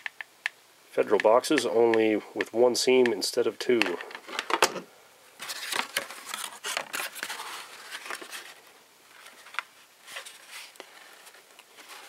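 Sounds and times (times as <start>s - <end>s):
cardboard scraping and crackling: 5.4s - 12.0s.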